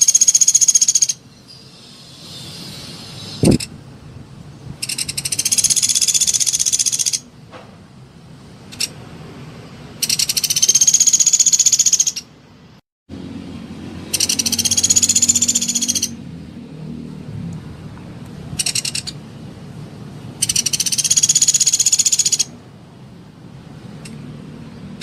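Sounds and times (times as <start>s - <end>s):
woodpecker rattling trills: 0.0s - 1.6s, 4.8s - 7.2s, 10.0s - 12.3s, 14.0s - 16.2s, 18.6s - 19.2s, 20.4s - 22.5s.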